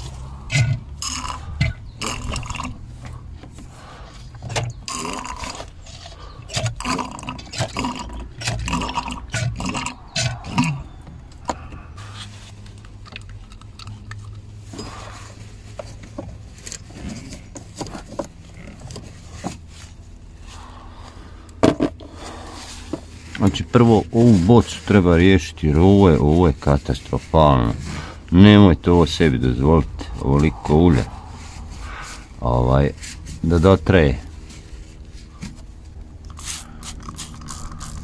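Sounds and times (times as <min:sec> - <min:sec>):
low steady hum: 0:00.0 - 0:38.0
fluid gurgling and slurping in tube: 0:00.5 - 0:02.8, 0:04.5 - 0:10.8, 0:36.3 - 0:38.0
scrapes: 0:09.3 - 0:21.0, 0:21.8 - 0:38.0.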